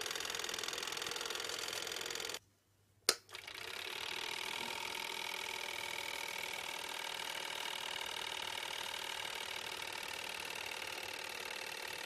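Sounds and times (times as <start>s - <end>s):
film projector running: 0.0s - 2.4s, 3.3s - 12.0s.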